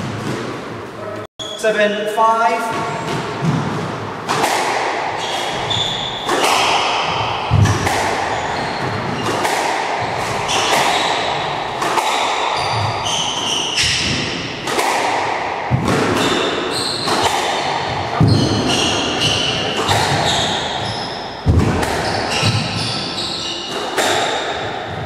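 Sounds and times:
squash ball impacts: 2.7s - 25.0s
shoes squeaking on wooden floor: 5.2s - 6.3s, 7.1s - 9.5s, 18.2s - 23.8s.

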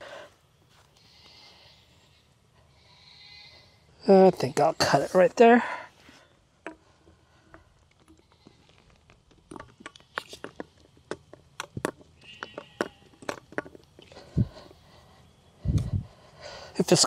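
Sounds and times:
plastic pipe clicking and creaking: 6.6s - 14.4s.

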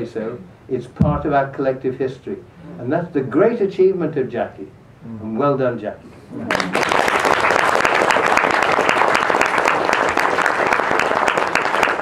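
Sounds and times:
large audience applauding: 6.5s - 12.0s.

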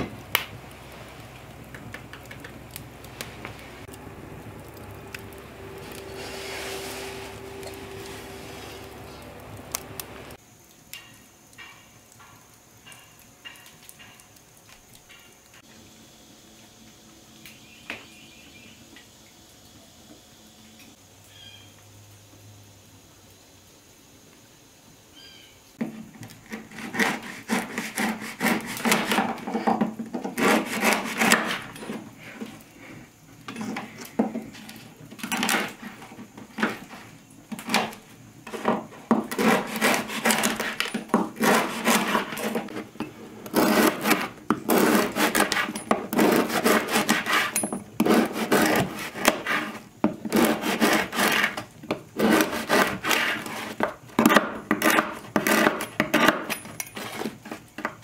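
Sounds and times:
knife sawing through crusty bread: 26.4s - 29.4s, 30.3s - 31.8s, 39.3s - 42.8s, 43.5s - 53.8s.

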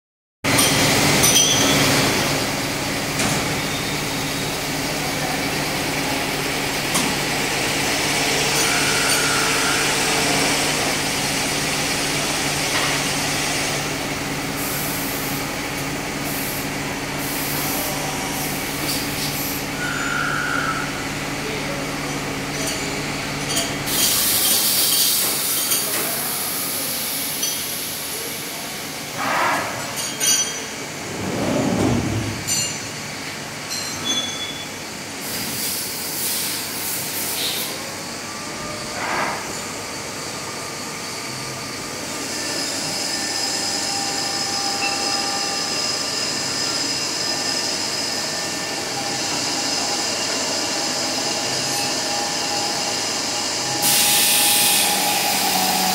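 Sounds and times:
machine whine: 0.5s - 28.3s, 37.4s - 55.9s
metallic clinks and squeals: 0.6s - 2.0s, 30.0s - 30.7s, 33.7s - 34.8s, 43.4s - 47.6s.

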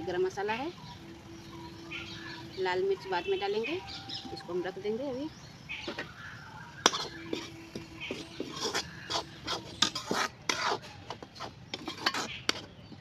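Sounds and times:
ladle scraping metal pan: 6.8s - 12.8s.

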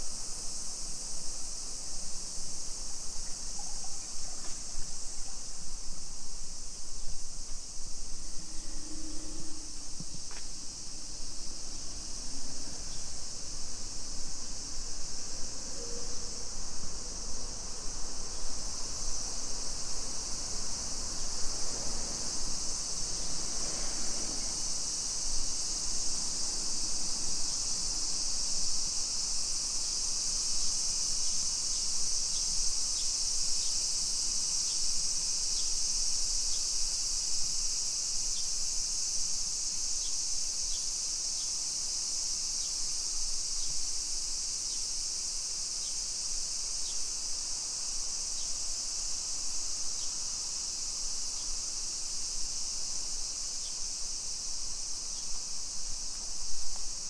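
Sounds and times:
insects buzzing: 0.0s - 57.0s.

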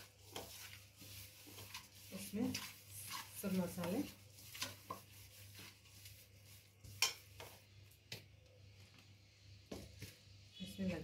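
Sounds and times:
fingers squishing paste in metal bowl: 0.0s - 8.4s.

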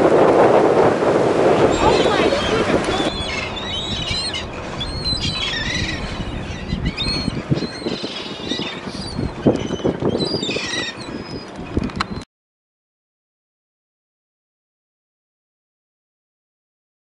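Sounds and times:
water rushing: 0.0s - 12.1s
wind: 0.0s - 12.3s
gulls calling: 0.1s - 12.2s.

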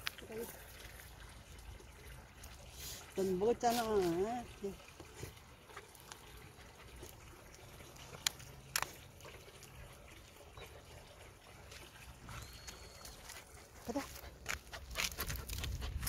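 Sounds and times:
puppies licking and eating: 0.0s - 16.0s.

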